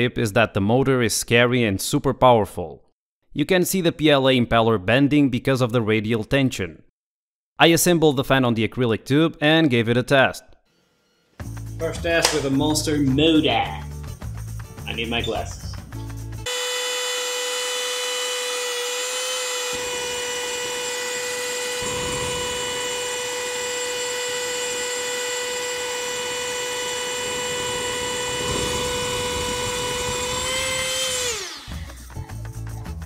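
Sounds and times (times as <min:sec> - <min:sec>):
electric fan motor whine: 0:16.5 - 0:32.1
propane burning rush: 0:20.9 - 0:24.9, 0:25.6 - 0:31.1.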